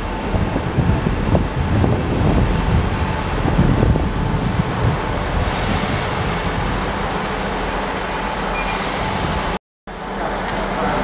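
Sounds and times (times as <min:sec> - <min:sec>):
wind on microphone: 0:00.0 - 0:07.2
train diesel engines rumbling: 0:00.0 - 0:11.0.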